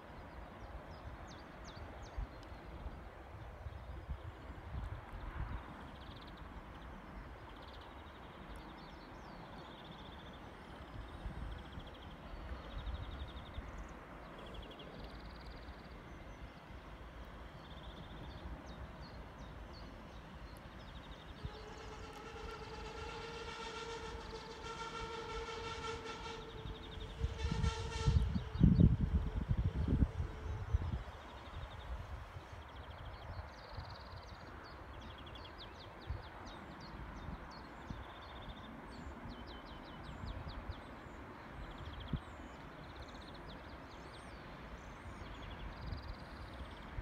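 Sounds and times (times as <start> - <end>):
train horn chord: 21.3 - 31.1
wind on microphone: 26.4 - 34.0.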